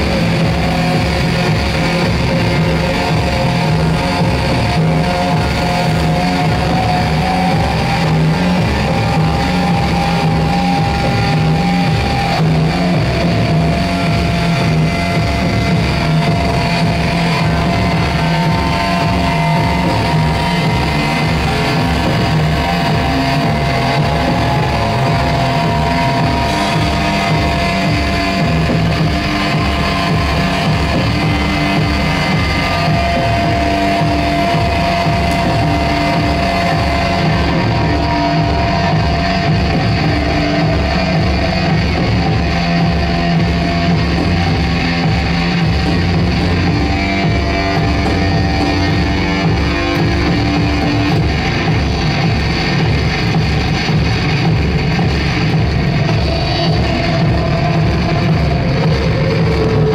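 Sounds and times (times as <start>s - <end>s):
distorted noise music: 0.0s - 59.9s.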